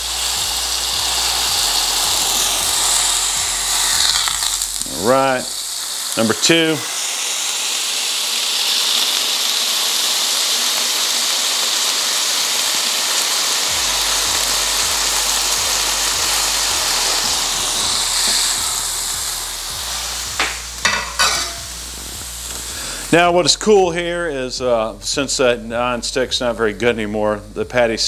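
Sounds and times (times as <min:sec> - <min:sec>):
low hum: 0:00.0 - 0:06.0, 0:13.7 - 0:23.4
burger patties sizzling on griddle: 0:00.0 - 0:28.0.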